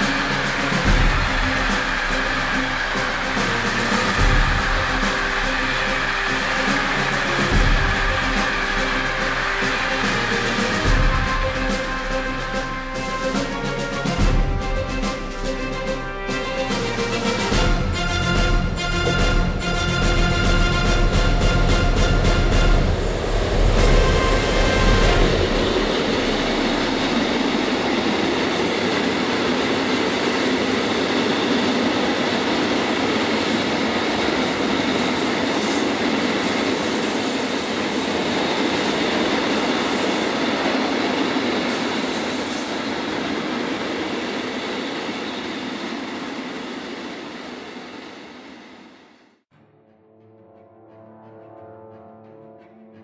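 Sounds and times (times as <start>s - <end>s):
train wheels rumbling on rail: 0.0s - 49.2s
high wheel squeals: 21.8s - 28.0s, 41.6s - 43.3s.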